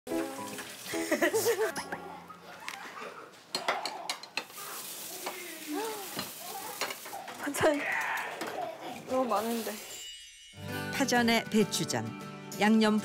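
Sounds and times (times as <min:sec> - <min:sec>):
meat sizzling in a frying pan: 0:04.4 - 0:07.8.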